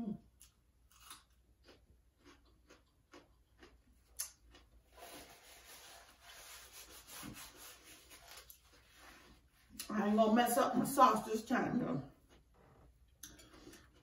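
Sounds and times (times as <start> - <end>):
chewing with mouth clicks: 0.3 - 5.0, 12.1 - 14.0
paper napkin rustling: 5.0 - 9.7.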